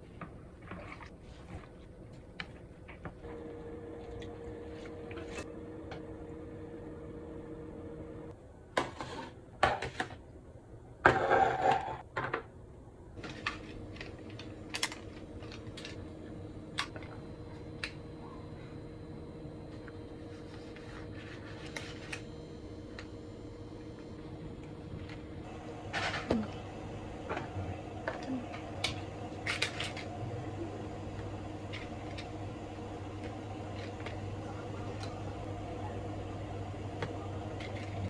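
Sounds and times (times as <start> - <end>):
steady hum: 2.4 - 8.4, 12.9 - 38.0.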